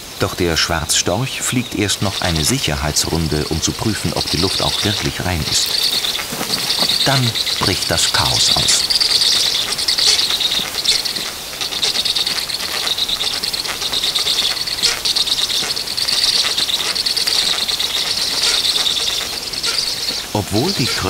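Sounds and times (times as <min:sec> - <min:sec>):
nestlings begging chorus: 0:00.0 - 0:21.0.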